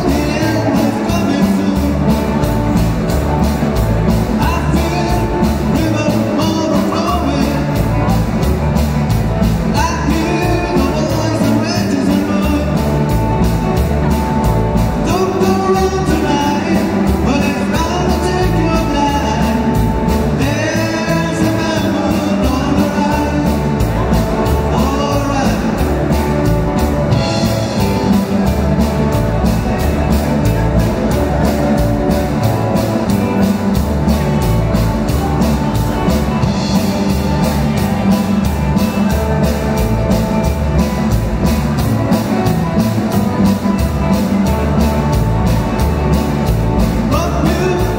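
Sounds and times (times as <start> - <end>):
person singing lead vocal: 0.0 - 2.6, 4.4 - 8.2, 9.7 - 13.0, 15.0 - 26.3, 47.0 - 47.9
drum kit beat: 0.0 - 47.9
electric bass: 0.0 - 47.9
electric guitars: 0.0 - 47.9.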